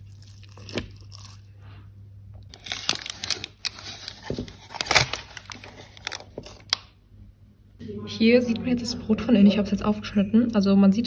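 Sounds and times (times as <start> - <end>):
spoon stirring wet mixture: 0.0 - 1.6
baking paper crinkling: 2.5 - 6.8.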